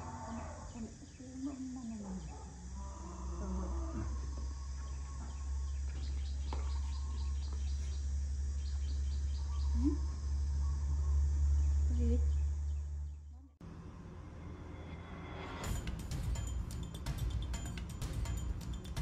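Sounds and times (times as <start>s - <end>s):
faint low animal calls: 0.0s - 13.5s
steady low hum: 0.0s - 19.0s.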